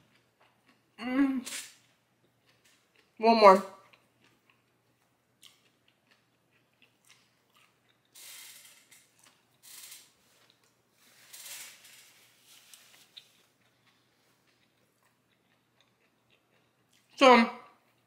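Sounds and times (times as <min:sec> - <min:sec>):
crunchy chewing: 0:01.5 - 0:03.2, 0:03.8 - 0:08.2, 0:12.5 - 0:17.2
paper napkin rustling: 0:11.0 - 0:13.4.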